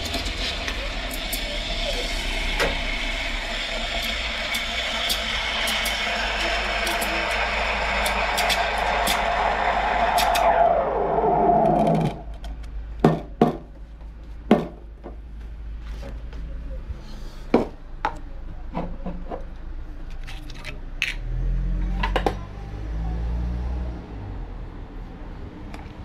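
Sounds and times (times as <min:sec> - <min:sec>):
steam wand hissing: 0:00.0 - 0:12.3
low hum: 0:00.0 - 0:13.0.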